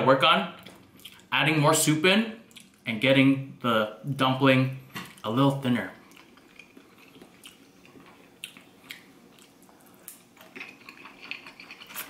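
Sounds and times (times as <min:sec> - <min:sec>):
person eating with wet smacks: 0:02.5 - 0:02.8, 0:06.0 - 0:12.0.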